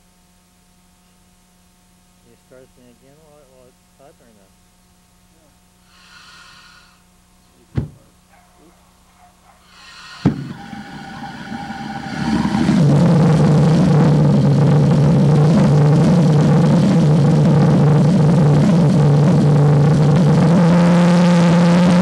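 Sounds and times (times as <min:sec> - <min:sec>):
jet engine popping: 0:09.4 - 0:22.0
jet engine roaring: 0:09.7 - 0:22.0.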